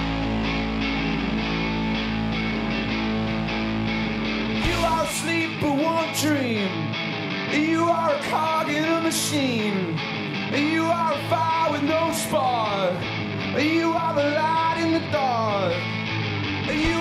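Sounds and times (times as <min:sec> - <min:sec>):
rock band playing: 0:00.0 - 0:17.0
person singing: 0:04.6 - 0:06.9, 0:07.5 - 0:15.9, 0:16.7 - 0:17.0.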